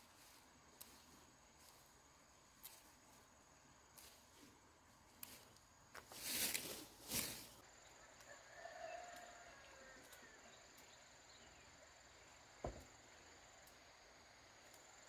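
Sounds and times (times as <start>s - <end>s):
short thump: 12.6s - 12.9s.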